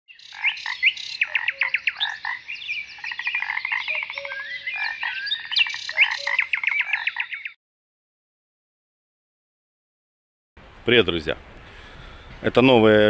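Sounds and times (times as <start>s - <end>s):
birds chirping and trilling: 0.1s - 7.6s
harsh croaking bird calls: 0.1s - 7.6s.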